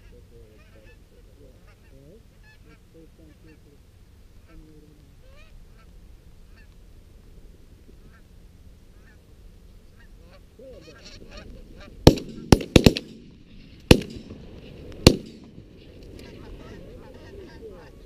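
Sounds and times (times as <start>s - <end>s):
geese honking: 0.0s - 6.8s, 8.0s - 8.3s, 8.9s - 12.0s, 15.8s - 18.0s
shotgun shots: 12.0s - 15.8s.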